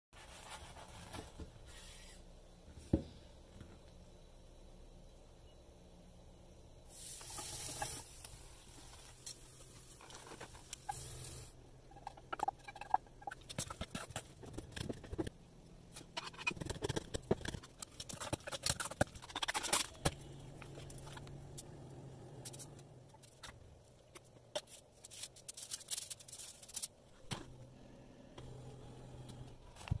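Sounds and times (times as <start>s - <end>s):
faint low hum: 0.3s - 7.0s.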